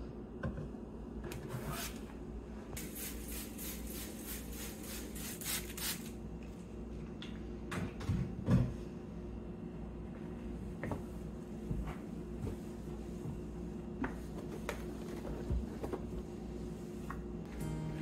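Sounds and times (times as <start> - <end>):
spray bottle spritzing: 2.8 - 6.1.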